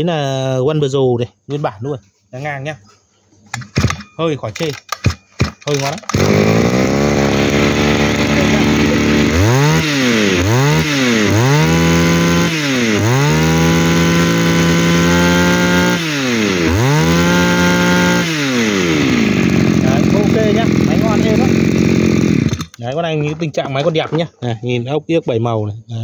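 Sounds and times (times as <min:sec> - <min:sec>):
brush cutter engine revving: 0:04.6 - 0:23.0.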